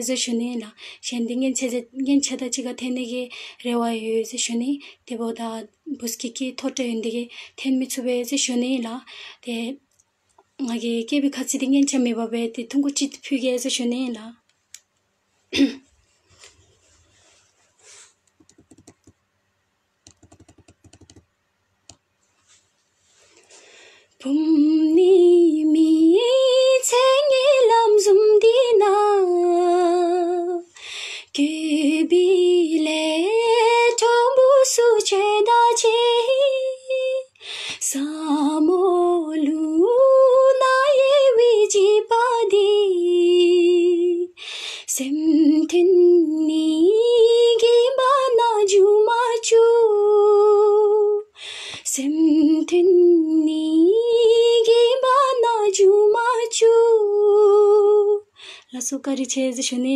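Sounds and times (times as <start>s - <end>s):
woman singing unaccompanied: 0.0s - 9.8s, 10.6s - 14.4s, 24.2s - 30.7s, 31.3s - 59.9s
faint clicks: 18.2s - 19.2s.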